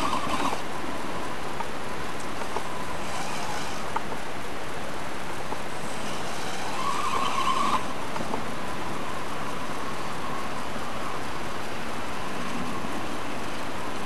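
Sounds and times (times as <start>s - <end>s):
electric motor and gear whine: 0.0s - 14.0s
steady hiss: 0.0s - 14.0s.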